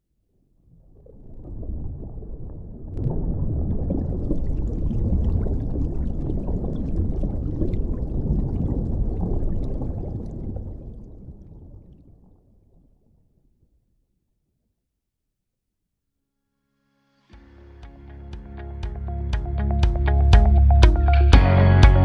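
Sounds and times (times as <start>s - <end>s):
muffled underwater rushing water: 0.3s - 13.8s.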